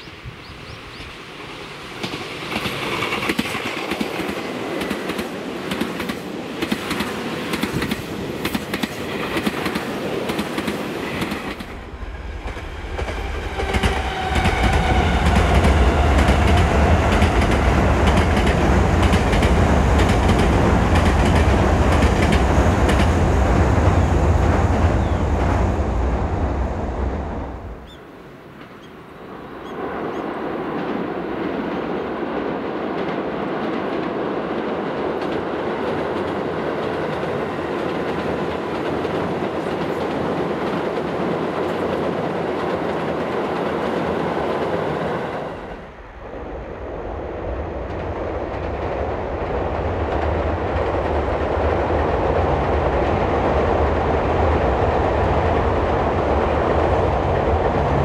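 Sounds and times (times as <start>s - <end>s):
electric train running: 2.0s - 24.8s.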